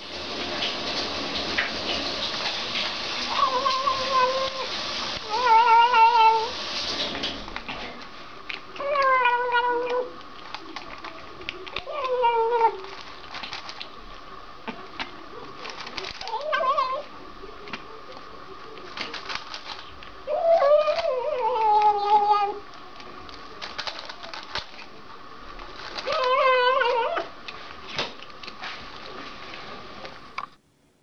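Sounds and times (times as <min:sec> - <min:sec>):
cat chewing and lapping: 0:00.2 - 0:30.6
cat meowing: 0:26.0 - 0:27.3.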